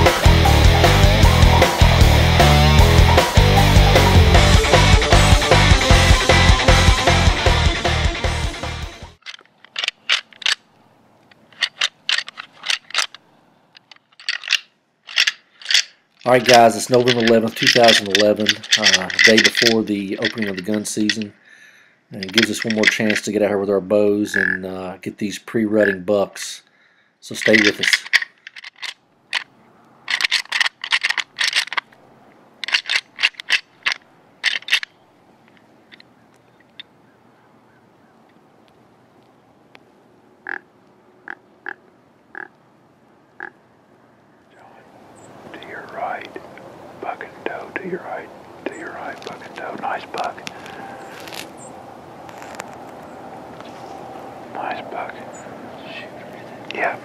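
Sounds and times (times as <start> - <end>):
rock music: 0.0 - 9.2
antlers clacking together: 9.2 - 10.6, 11.3 - 21.4, 22.1 - 23.5, 24.3 - 24.6, 27.3 - 29.5, 30.1 - 32.0, 32.6 - 36.9.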